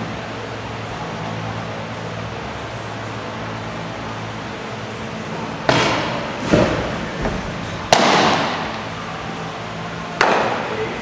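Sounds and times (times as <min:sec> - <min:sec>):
knocks and thuds in a hall: 0:05.6 - 0:08.9
baseball popping into a mitt: 0:07.9 - 0:08.8.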